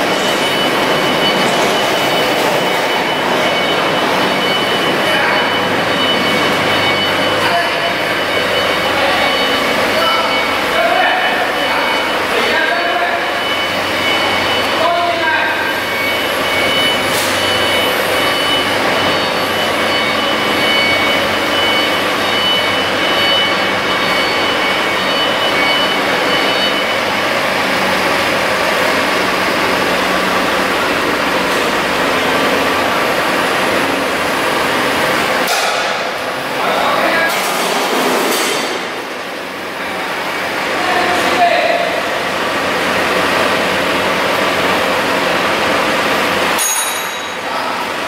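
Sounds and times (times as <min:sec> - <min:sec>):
faint high steady tones: 0:00.0 - 0:35.3
machinery running: 0:00.0 - 0:48.0.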